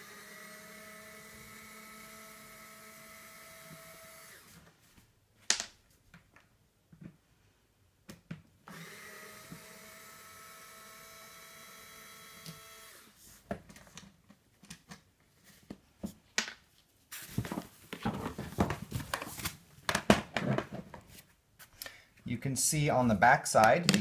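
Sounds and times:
cordless screwdriver running: 0.0 - 4.5, 8.7 - 13.1.

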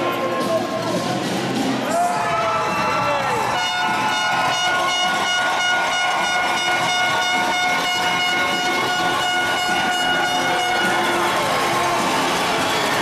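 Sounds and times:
horn blowing long note: 3.4 - 12.0.

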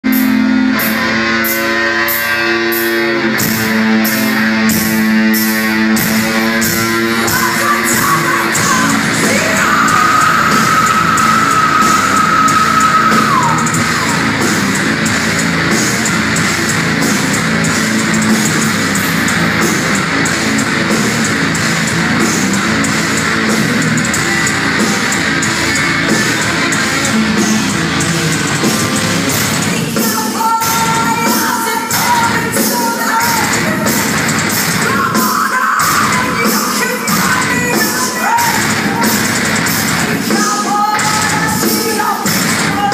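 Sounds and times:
distorted electric guitars: 0.0 - 42.9
live metal band playing: 0.0 - 42.9
drum beat: 3.4 - 42.9.

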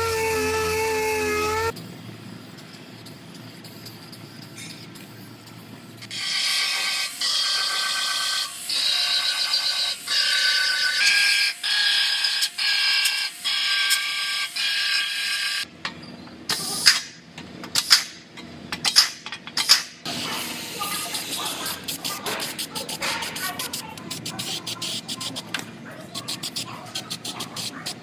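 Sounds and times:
hand sanding tool whining: 0.0 - 1.8.

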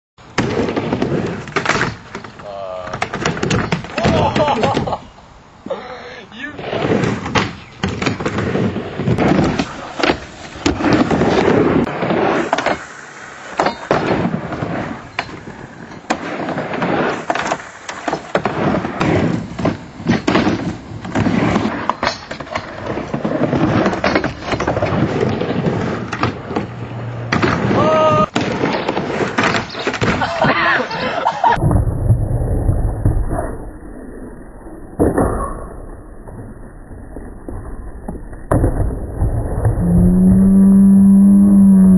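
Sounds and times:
skateboard wheels rumbling on wood: 0.3 - 5.0, 6.6 - 33.7, 36.2 - 41.9.

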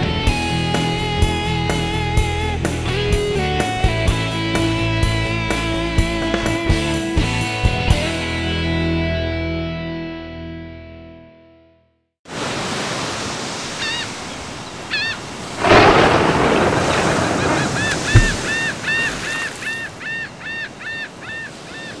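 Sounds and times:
ocean surf washing in: 12.3 - 22.0
wave breaking: 12.3 - 22.0
seagulls calling: 13.6 - 22.0.

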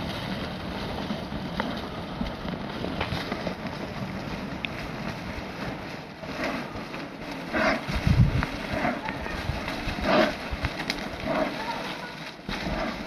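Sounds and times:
wind buffeting microphone: 0.0 - 11.6
heavy low rumble: 0.0 - 13.0.

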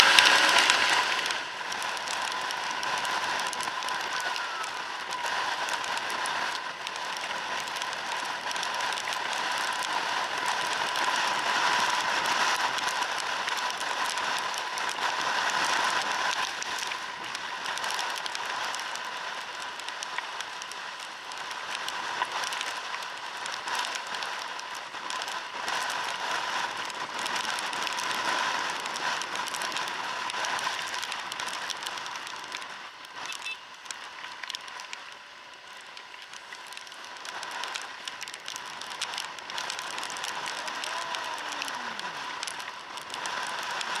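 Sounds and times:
crackles: 0.0 - 44.0
wet road hiss: 0.0 - 44.0.

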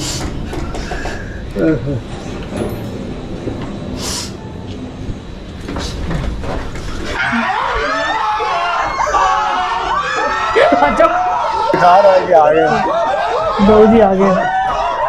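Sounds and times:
steady low rumble: 0.0 - 7.2
people shouting and screaming: 7.2 - 15.0.

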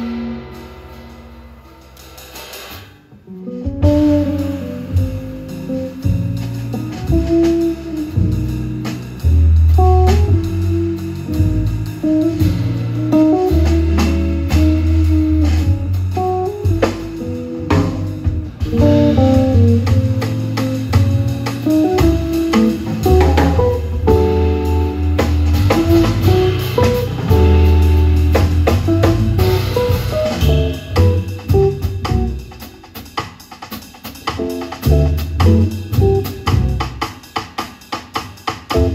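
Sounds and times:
low double bass notes: 0.0 - 2.4, 3.3 - 32.7, 34.6 - 37.0
drum kit on cymbals and drums: 0.0 - 38.9
archtop guitar melody: 3.3 - 8.9, 9.8 - 32.5, 34.4 - 36.8.

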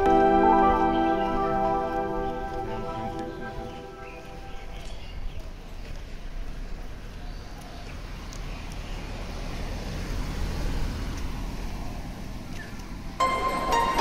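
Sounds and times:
background music: 0.0 - 4.8, 13.2 - 14.0
car driving past: 8.9 - 14.0.

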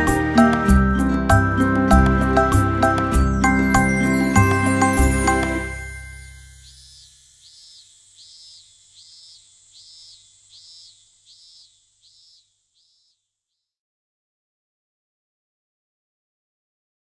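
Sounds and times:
glockenspiel music: 0.0 - 7.0
faint high chirps: 3.4 - 13.7.

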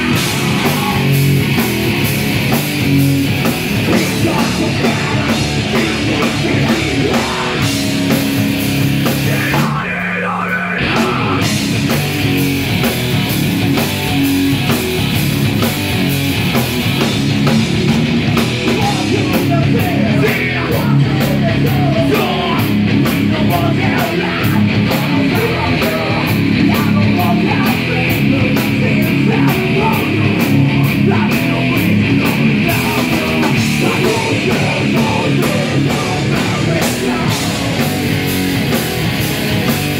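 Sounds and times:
drum kit with cymbal hits: 0.0 - 10.1, 10.8 - 39.9
distorted electric guitar: 0.0 - 39.9
shouted vocals: 9.2 - 11.5.

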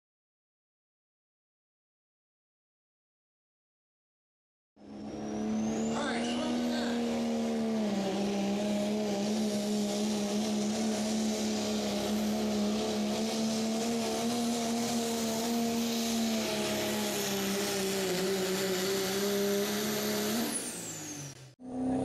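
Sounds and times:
diesel engine at full throttle: 4.8 - 22.0
high whine rising in pitch: 4.8 - 22.0.

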